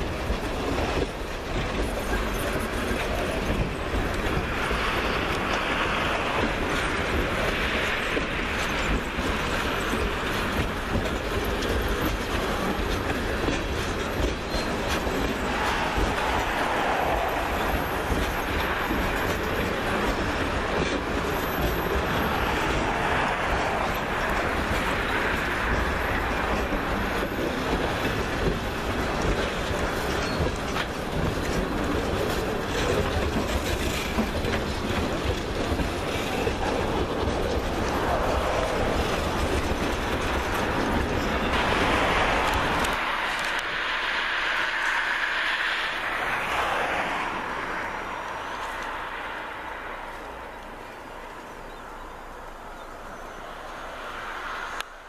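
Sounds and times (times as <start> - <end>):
train wheels clattering over rail joints: 0.0 - 49.3.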